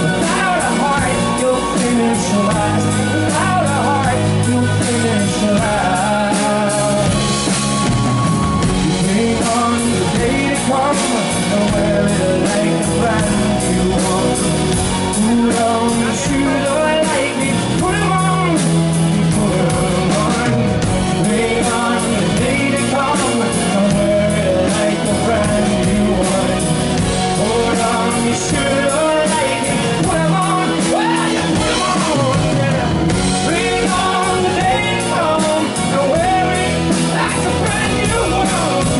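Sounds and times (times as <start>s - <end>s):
drums: 0.0s - 38.9s
electric bass guitar: 0.0s - 38.9s
man singing: 0.0s - 38.9s.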